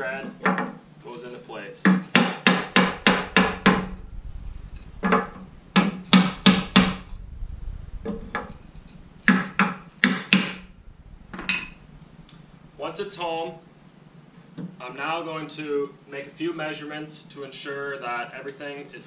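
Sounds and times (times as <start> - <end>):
hammer knocking on wooden block: 1.9 - 3.9.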